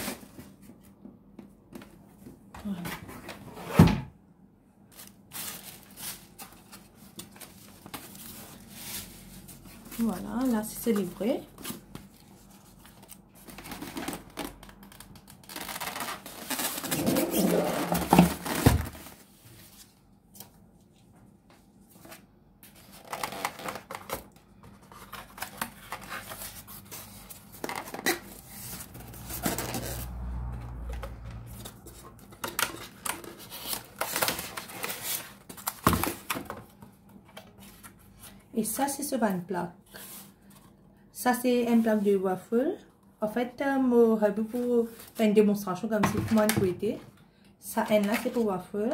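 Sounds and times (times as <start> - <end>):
packaging rustling and scraping: 0.0 - 0.9, 4.9 - 20.0, 21.8 - 38.5.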